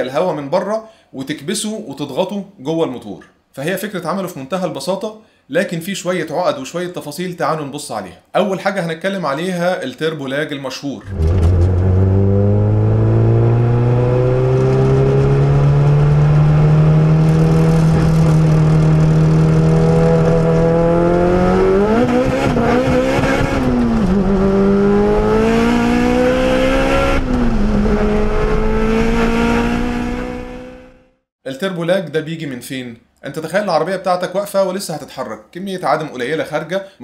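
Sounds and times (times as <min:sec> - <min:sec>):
turbo car engine accelerating: 0:11.1 - 0:31.2.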